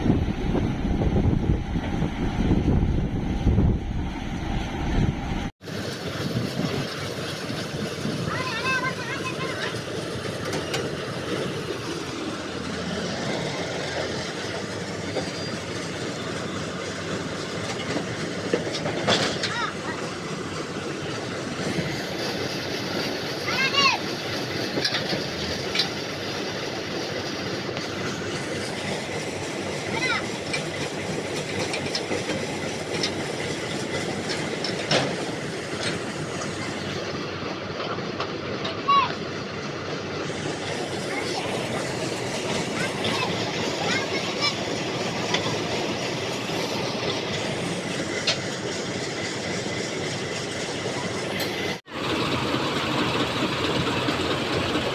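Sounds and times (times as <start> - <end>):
combine harvester running: 0.0 - 54.9.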